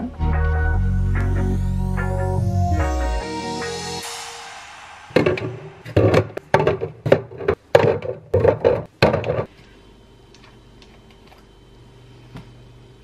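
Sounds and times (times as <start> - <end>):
bottles knocking on plastic shelf: 5.3 - 9.5.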